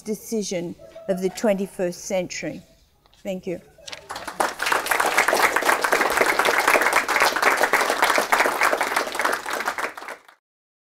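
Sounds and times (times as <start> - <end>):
audience applauding: 3.9 - 10.4.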